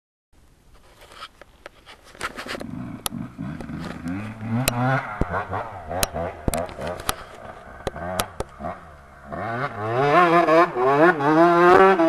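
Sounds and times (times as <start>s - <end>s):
dirt bike engine revving: 2.6s - 12.0s.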